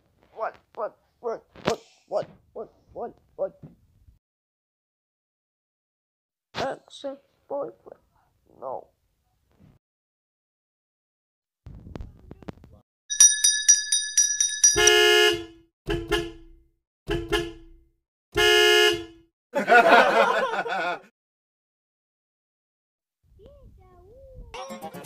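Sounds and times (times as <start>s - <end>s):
high chiming ticks: 13.1s - 15.0s
horn honking: 14.8s - 17.8s, 18.4s - 19.3s.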